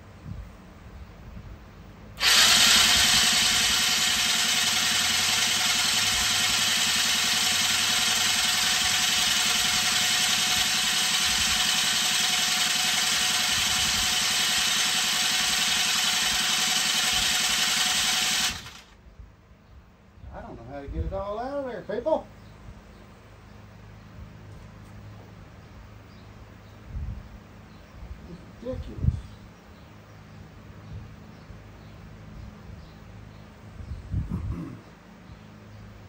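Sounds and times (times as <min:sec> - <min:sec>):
electric starter cranking engine: 0:02.2 - 0:19.0.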